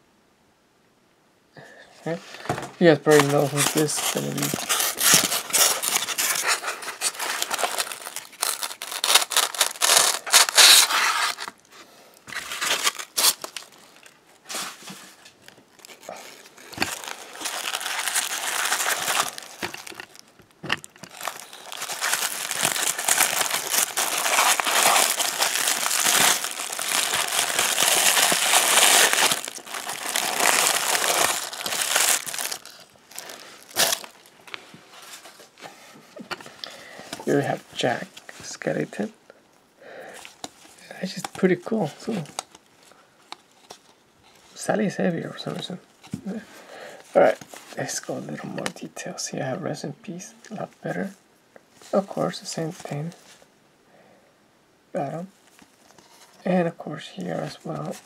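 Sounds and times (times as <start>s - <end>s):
tissue paper crinkling: 2.1s - 38.9s.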